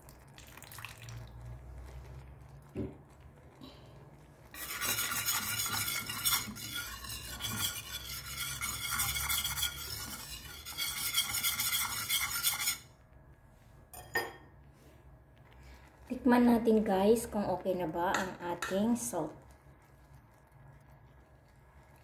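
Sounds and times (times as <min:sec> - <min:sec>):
whisk scraping a frying pan: 0:01.3 - 0:13.0.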